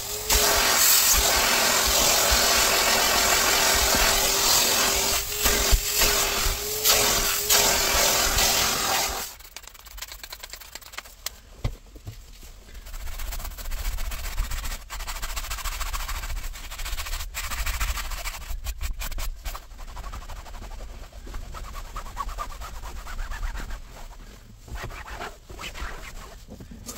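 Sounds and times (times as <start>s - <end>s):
vacuum motor hum and suction: 0.0s - 9.3s
cloth rubbing fabric: 12.9s - 26.9s.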